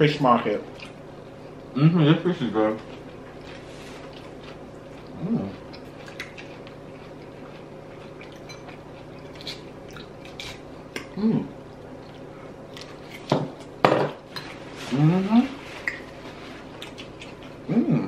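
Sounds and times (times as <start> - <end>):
person humming mm: 1.8 - 2.2, 5.1 - 5.6, 11.1 - 11.5, 14.9 - 15.6, 17.7 - 18.0.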